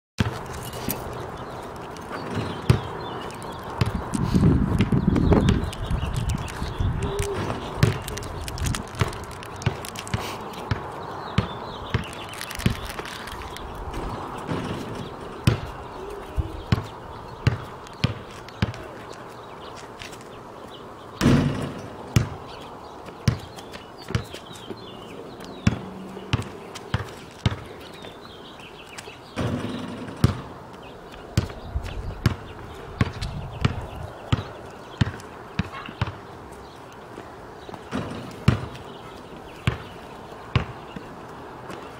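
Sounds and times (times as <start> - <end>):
basketball bouncing on asphalt: 0.2 - 20.2, 21.2 - 41.9.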